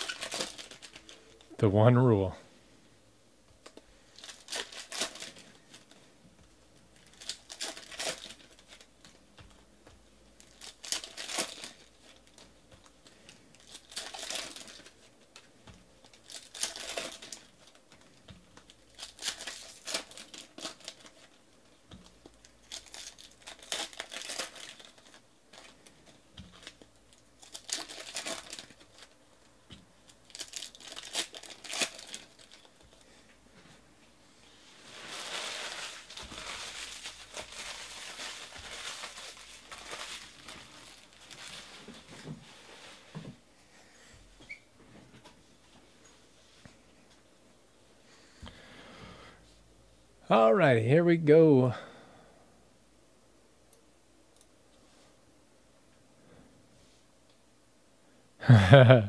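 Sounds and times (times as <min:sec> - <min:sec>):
foil wrappers tearing and crinkling: 0:00.0 - 0:01.5, 0:03.6 - 0:06.0, 0:07.0 - 0:09.2, 0:10.4 - 0:29.2, 0:30.0 - 0:33.2, 0:34.8 - 0:42.2.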